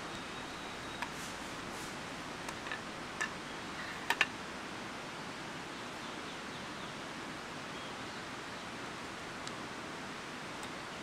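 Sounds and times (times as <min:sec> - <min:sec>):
outdoor hiss: 0:00.0 - 0:11.0
wooden chair parts clicking: 0:02.5 - 0:04.3.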